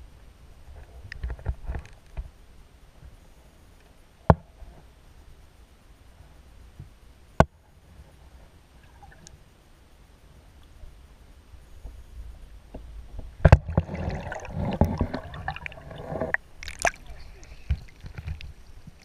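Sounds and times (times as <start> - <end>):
low underwater rumble: 10.7 - 19.0.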